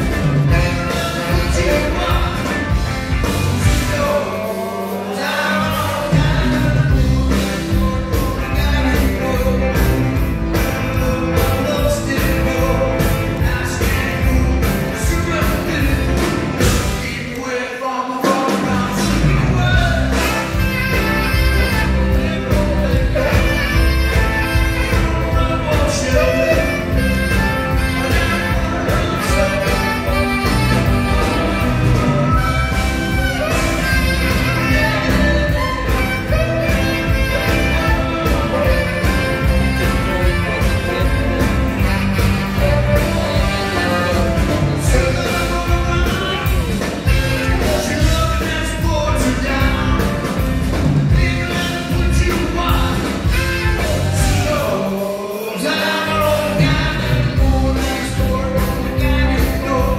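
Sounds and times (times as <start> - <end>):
saxophone: 0.0 - 17.0, 18.5 - 59.9
bass: 0.0 - 17.5, 18.2 - 59.9
electric guitars: 0.0 - 17.6, 18.2 - 59.9
drums: 0.0 - 59.9
keyboards: 0.0 - 59.9
man singing lead vocal: 0.0 - 59.9.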